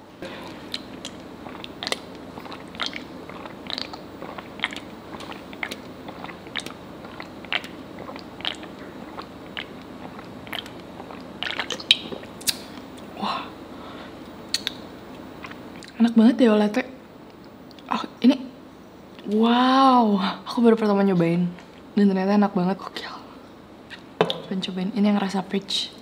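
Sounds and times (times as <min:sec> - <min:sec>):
person gulping a drink: 0:00.2 - 0:12.7, 0:15.4 - 0:16.0.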